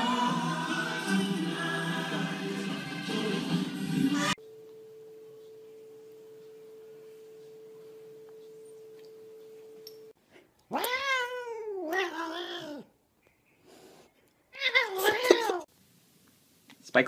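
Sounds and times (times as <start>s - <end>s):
cat yowling: 10.7s - 12.9s, 14.5s - 15.7s.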